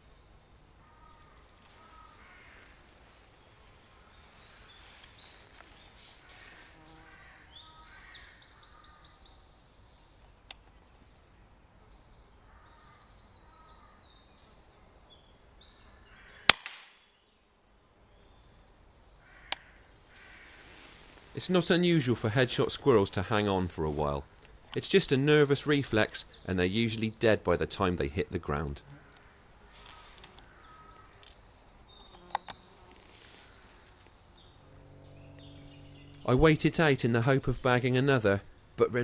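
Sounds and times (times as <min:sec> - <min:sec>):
air rifle shot: 0:16.5 - 0:17.0.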